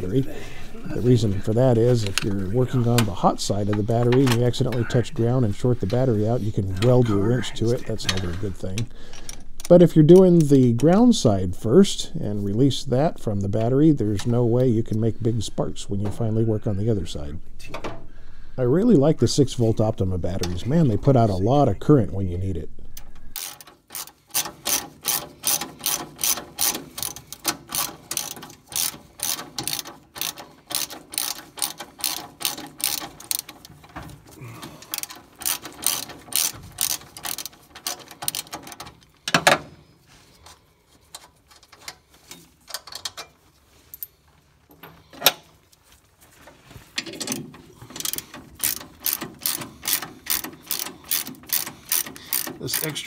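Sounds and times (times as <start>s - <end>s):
ratchet wrench clicking: 22.9s - 33.9s, 34.6s - 39.6s, 47.0s - 53.0s.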